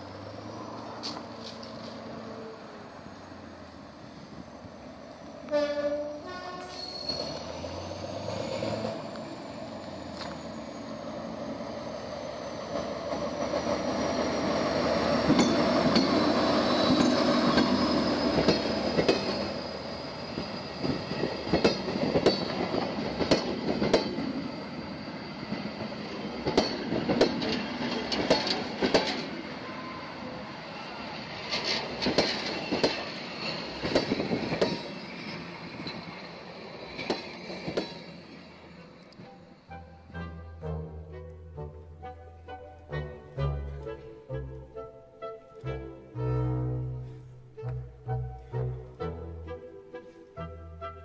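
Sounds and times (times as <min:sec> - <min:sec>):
diesel locomotive engine: 0:00.0 - 0:51.0
high wheel squeal: 0:00.4 - 0:12.7, 0:13.3 - 0:23.0, 0:24.4 - 0:26.1, 0:29.4 - 0:40.4
wheels clicking over rail joints: 0:12.6 - 0:24.4, 0:25.4 - 0:29.5, 0:31.4 - 0:39.8.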